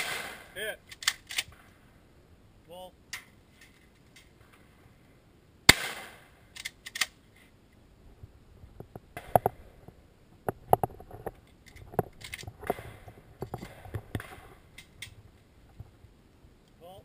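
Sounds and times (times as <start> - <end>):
shotgun shot: 0.0 - 0.8, 5.7 - 6.4
gun handling clicks: 0.8 - 1.6, 6.5 - 7.2, 11.6 - 12.8, 13.6 - 15.2.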